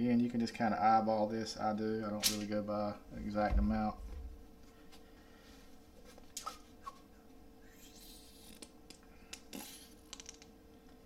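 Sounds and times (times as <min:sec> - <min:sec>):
squeeze bottle hiss: 0:09.4 - 0:10.1.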